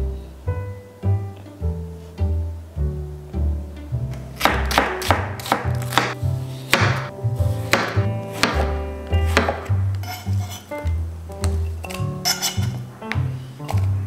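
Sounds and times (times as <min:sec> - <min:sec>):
background music with plucked bass: 0:00.0 - 0:14.0
knife chopping on cutting board: 0:04.4 - 0:07.1, 0:07.7 - 0:10.8, 0:12.2 - 0:13.3.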